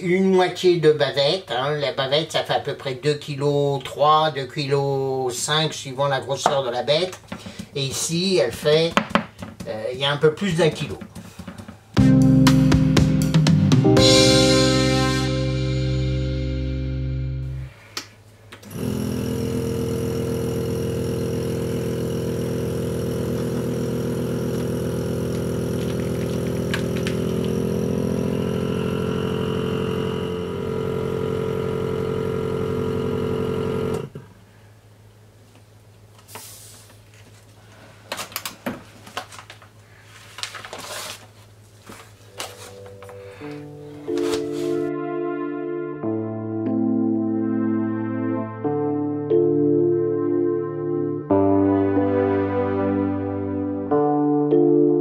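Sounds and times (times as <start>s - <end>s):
vacuum sealer pump running: 18.6s - 34.3s
plastic rustling: 25.2s - 27.6s, 36.8s - 44.9s.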